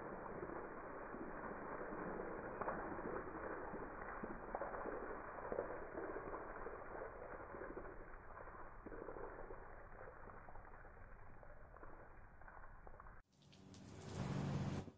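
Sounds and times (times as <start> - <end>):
water splashing onto grass: 0.0 - 14.9.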